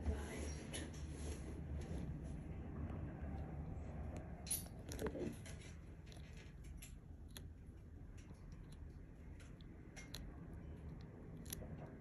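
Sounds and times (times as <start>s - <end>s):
tortoise biting a leaf: 3.4s - 12.0s.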